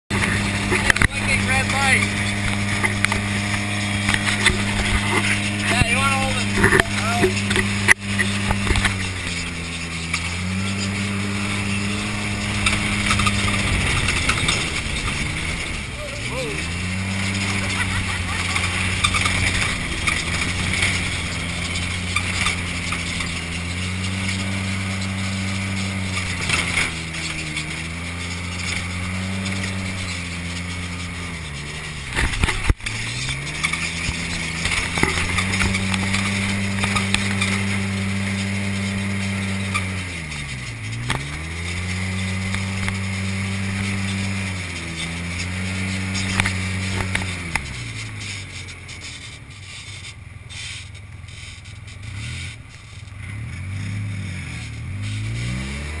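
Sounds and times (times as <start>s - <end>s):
vehicle engine revving: 0.0s - 56.0s
knocks and rattles: 0.1s - 15.9s, 16.6s - 48.2s.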